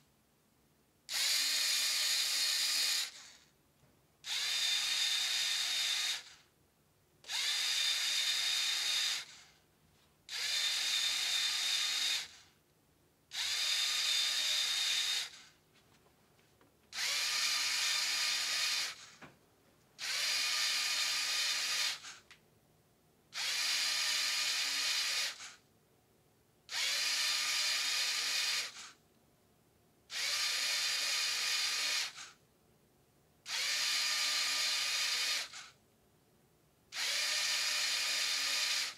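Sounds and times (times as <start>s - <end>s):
small electric motor whirring: 1.1s - 3.5s, 4.2s - 6.5s, 7.2s - 9.6s, 10.3s - 12.5s, 13.3s - 15.6s, 16.9s - 19.2s, 20.0s - 22.3s, 23.4s - 25.6s, 26.7s - 29.0s, 30.1s - 32.4s, 33.5s - 35.8s, 36.9s - 38.9s.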